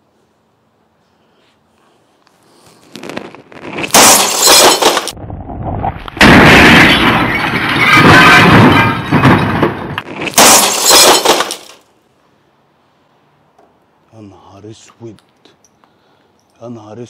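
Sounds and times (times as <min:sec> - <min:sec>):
glass shattering: 0:03.8 - 0:05.2, 0:06.2 - 0:11.8
plastic casing crashing: 0:06.2 - 0:11.7.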